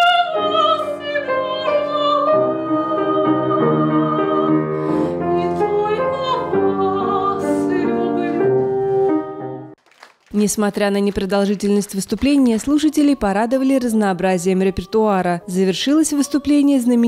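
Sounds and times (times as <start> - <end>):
woman singing classically: 0.0 - 4.6, 5.3 - 8.7, 12.7 - 17.0
piano accompaniment: 0.0 - 9.8.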